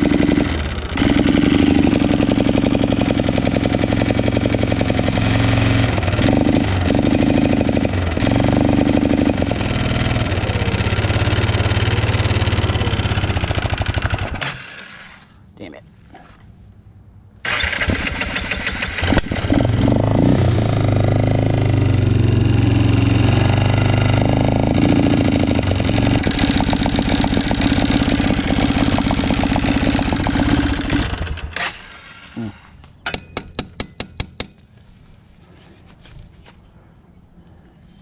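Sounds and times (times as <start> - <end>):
atv engine running unevenly: 0.0 - 15.1, 17.5 - 31.6.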